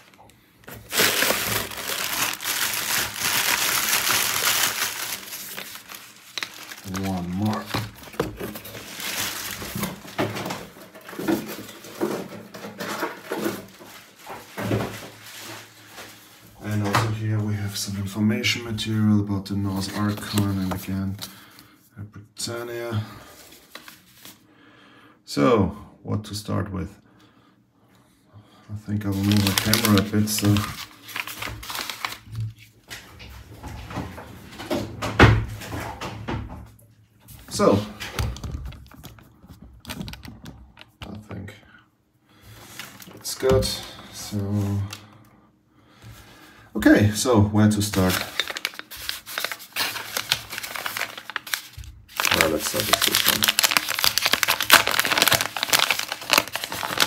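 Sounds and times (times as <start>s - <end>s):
paper and cardboard rustling: 0.0s - 17.0s, 29.0s - 33.0s, 47.8s - 57.0s.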